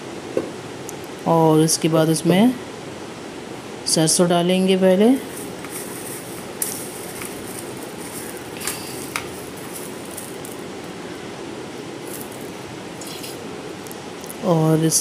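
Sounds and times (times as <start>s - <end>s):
seeds sizzling in hot oil: 5.2s - 11.0s.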